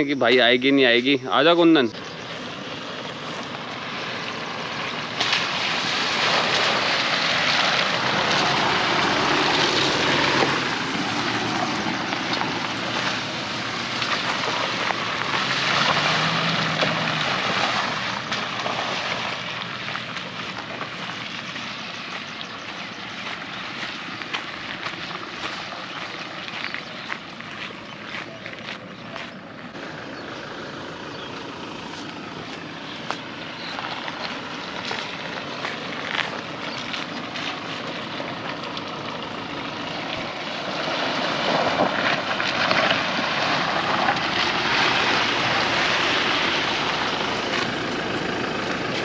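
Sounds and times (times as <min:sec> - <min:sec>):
pickup truck engine passing: 0:00.0 - 0:49.0
tyres on stones: 0:31.8 - 0:39.0.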